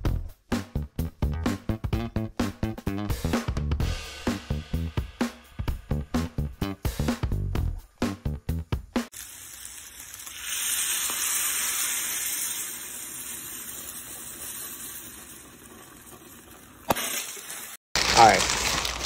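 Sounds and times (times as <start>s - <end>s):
food sizzling in a dish: 9.1s - 18.8s.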